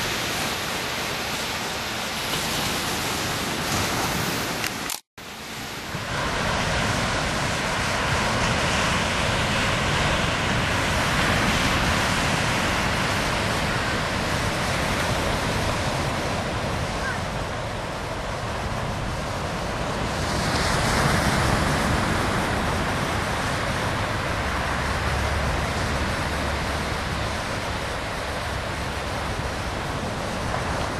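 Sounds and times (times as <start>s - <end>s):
surf washing on a sandy beach: 0.0s - 30.9s.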